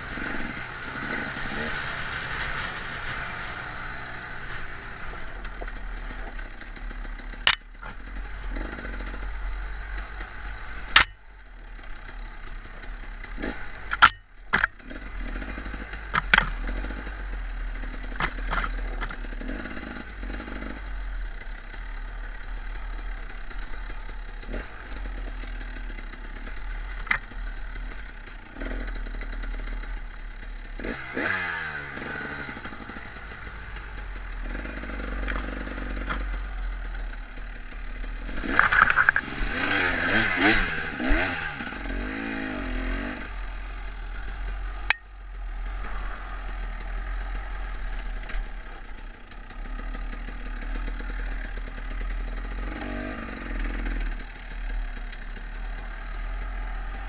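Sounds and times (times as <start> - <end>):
dirt bike engine running: 0.0 - 57.0
bike knocking over bumps: 18.1 - 19.3.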